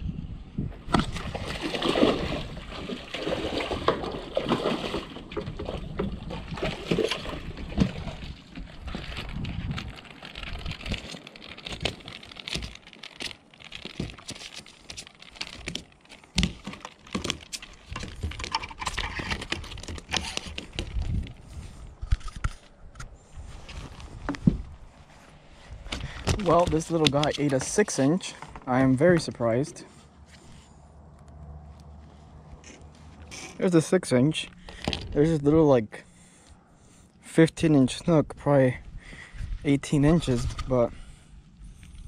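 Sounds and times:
fish flopping on wooden boards: 0.8 - 22.7, 25.6 - 29.3
fish splashing at water surface: 0.9 - 9.3.

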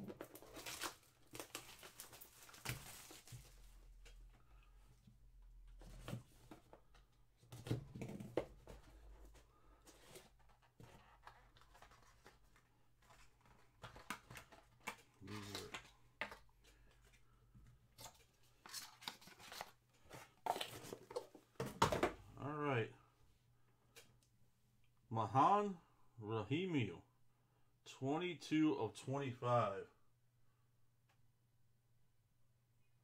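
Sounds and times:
cardboard and plastic rustling: 0.0 - 4.8, 5.6 - 22.2.

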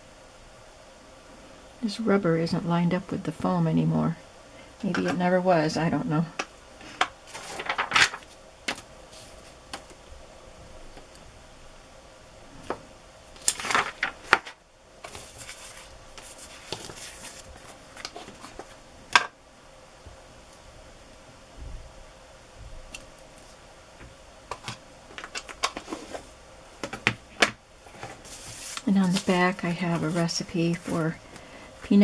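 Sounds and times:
paper rustling: 7.3 - 9.9, 13.4 - 18.8, 24.6 - 26.3, 27.9 - 31.2.

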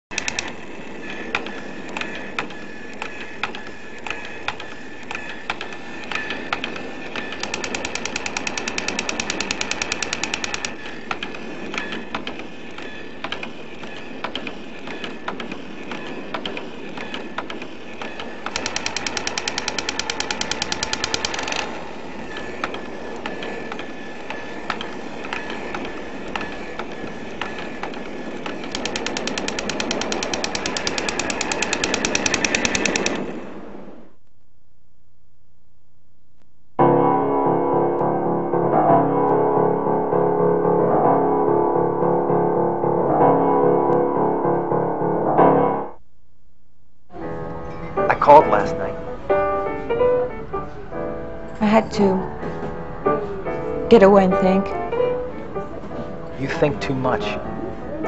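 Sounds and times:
steady hiss: 0.1 - 34.2
rapid automatic gunfire: 7.2 - 10.8, 18.5 - 21.7, 28.7 - 33.4.

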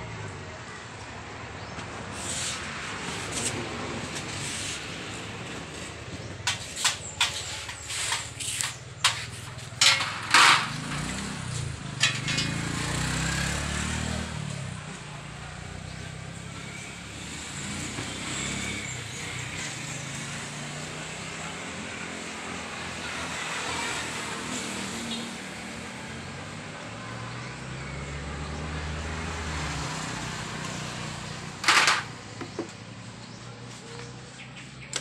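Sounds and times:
passing vehicle engine hum: 0.0 - 34.9
metal hand tools clinking: 12.0 - 12.7.

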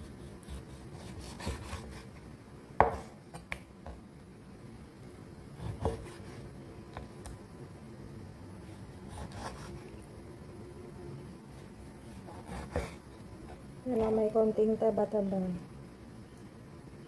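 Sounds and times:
knife slicing through raw meat: 0.1 - 2.1, 9.0 - 9.8.

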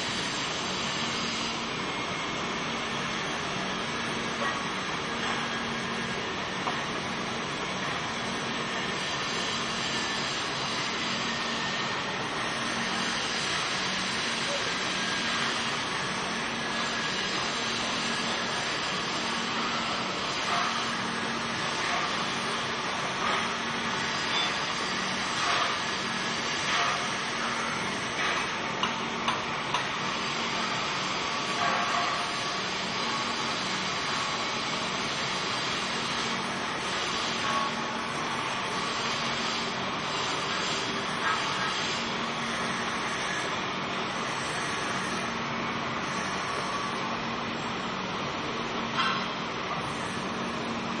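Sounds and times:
welding arc hissing: 0.0 - 6.2, 8.2 - 28.7, 29.6 - 45.4.

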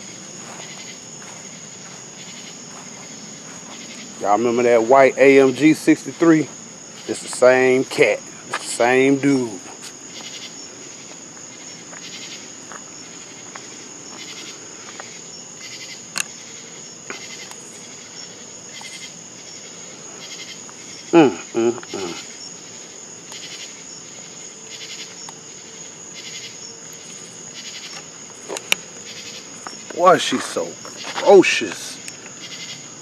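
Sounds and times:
crickets chirping: 0.0 - 33.0.

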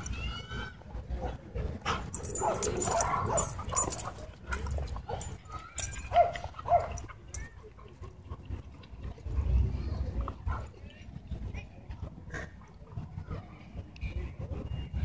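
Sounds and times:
dog yelping: 2.2 - 4.1.

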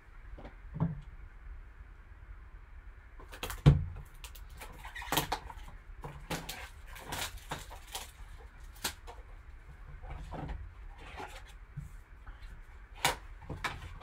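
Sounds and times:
plastic shrink-wrap ripping: 3.3 - 9.2.

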